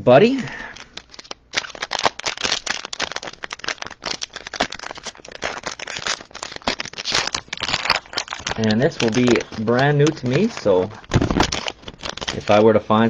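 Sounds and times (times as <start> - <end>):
cellophane wrapper crinkling: 0.4 - 13.0.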